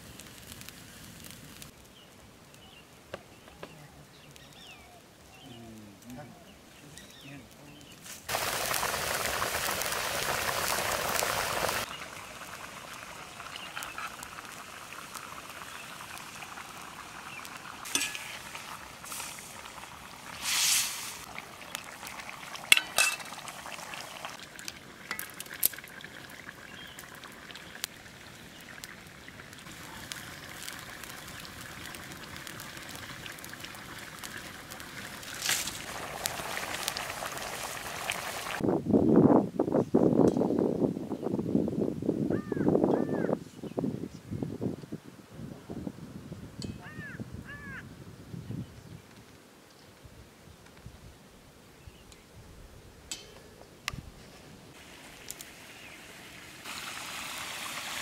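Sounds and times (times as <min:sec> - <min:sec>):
curry sizzling and bubbling: 0:00.0 - 0:02.8, 0:07.8 - 0:38.6, 0:53.1 - 0:58.0.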